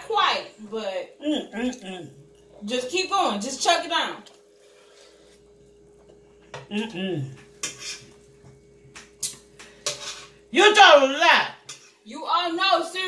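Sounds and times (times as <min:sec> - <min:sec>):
fork scraping a baking sheet: 0:07.6 - 0:08.2, 0:09.8 - 0:10.4, 0:11.7 - 0:12.0.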